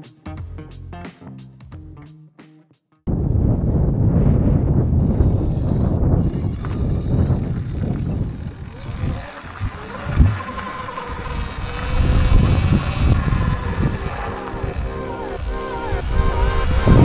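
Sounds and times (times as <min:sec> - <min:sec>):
rumble of wind and rough ground: 0:03.1 - 0:17.0
faint electric motor whine: 0:05.0 - 0:17.0.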